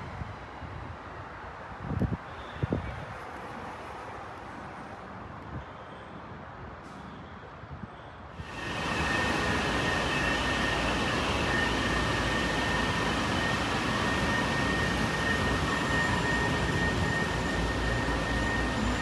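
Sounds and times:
thin high whine: 8.4 - 19.0.

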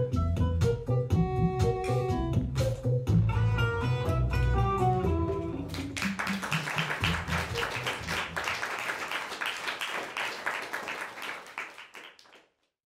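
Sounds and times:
audience applauding: 5.7 - 12.6.

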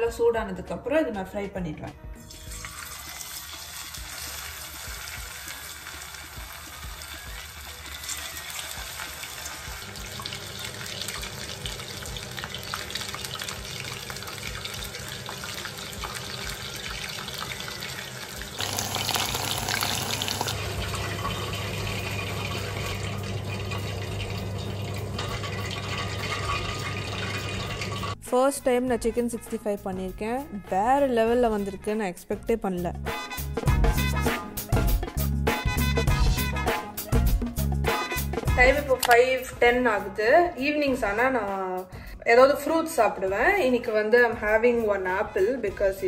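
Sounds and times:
chicken deep-frying in oil: 2.3 - 28.2.

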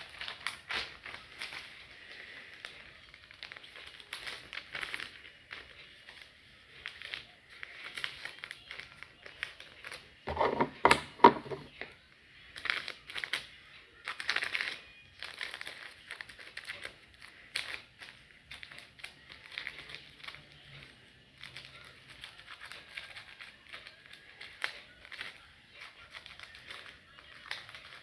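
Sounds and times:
package crinkling and rustling: 12.6 - 28.0.

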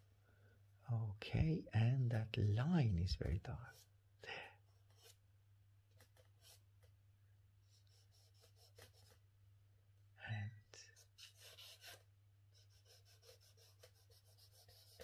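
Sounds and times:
low steady hum: 0.0 - 4.1
charcoal scratching on paper: 3.3 - 3.9, 4.7 - 5.2, 5.9 - 6.9, 7.6 - 9.2, 10.9 - 15.0.

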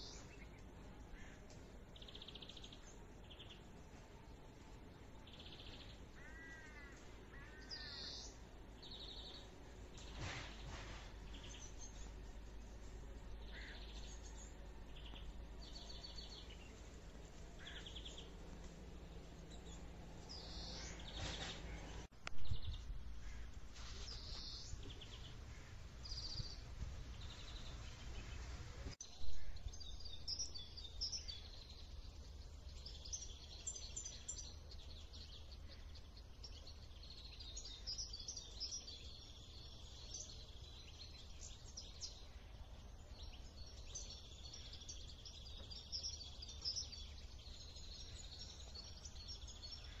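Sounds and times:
small birds chirping: 0.0 - 50.0
wind rumble on microphone: 22.3 - 29.0.

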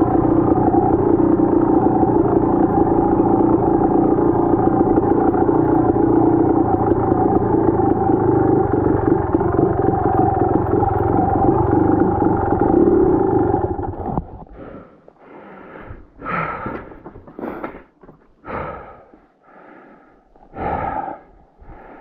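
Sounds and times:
dirt bike engine running: 0.0 - 14.9.

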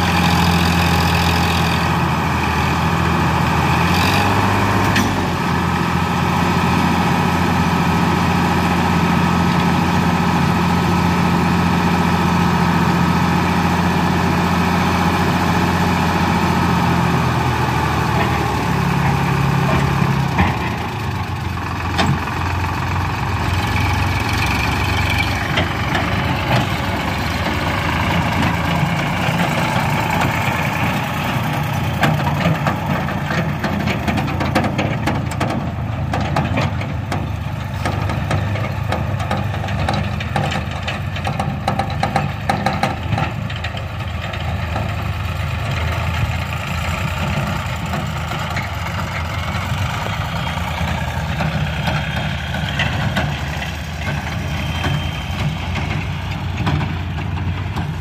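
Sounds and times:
tractor diesel engine running: 0.0 - 58.0.

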